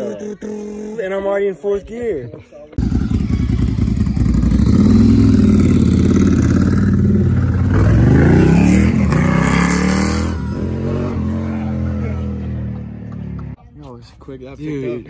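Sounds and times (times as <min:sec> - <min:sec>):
motorcycle engine accelerating: 0:02.8 - 0:13.6.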